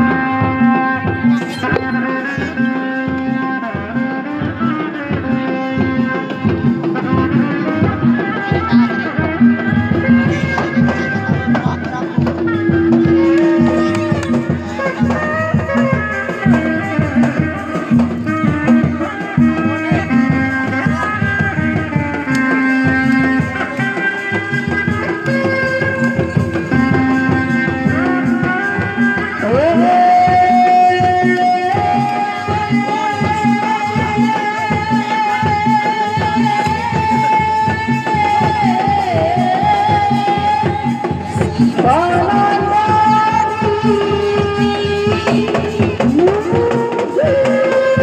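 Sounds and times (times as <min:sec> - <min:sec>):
high held melody note: 0:00.0 - 0:03.5, 0:05.5 - 0:17.4
fast hand drum rhythm: 0:00.0 - 0:48.0
pitched melody: 0:00.0 - 0:48.0.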